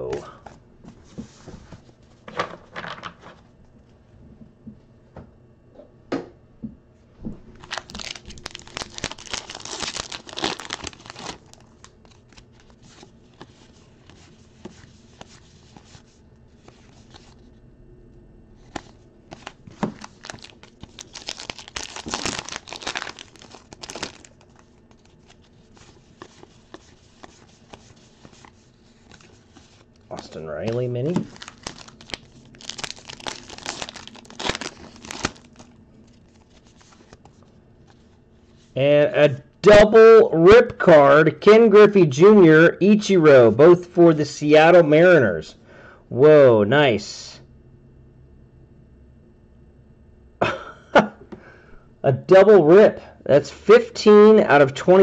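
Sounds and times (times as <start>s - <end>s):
card pack wrappers tearing and crinkling: 7.6s - 16.0s, 18.6s - 37.5s.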